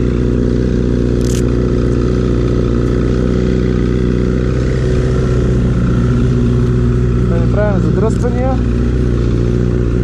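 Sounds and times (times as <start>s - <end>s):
motorcycle engine idling: 0.0s - 10.0s.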